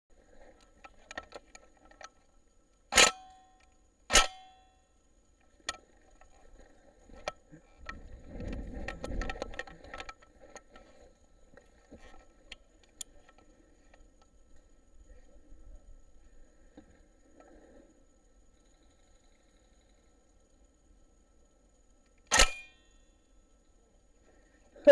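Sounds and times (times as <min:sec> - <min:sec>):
gunshots with metallic ring: 0:02.9 - 0:03.4, 0:04.1 - 0:04.6, 0:22.3 - 0:22.8.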